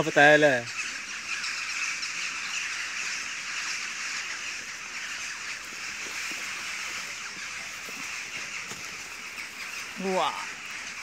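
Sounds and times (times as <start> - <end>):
insect chorus hiss: 0.0 - 11.0
footsteps on dry leaves: 5.6 - 10.2.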